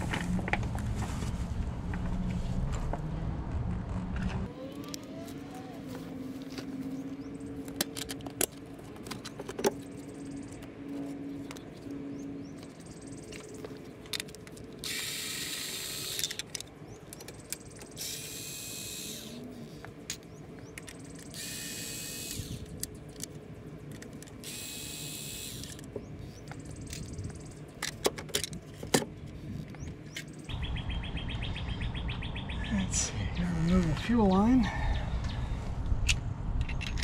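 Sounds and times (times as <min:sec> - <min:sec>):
cordless driver whirring: 0:12.6 - 0:28.6.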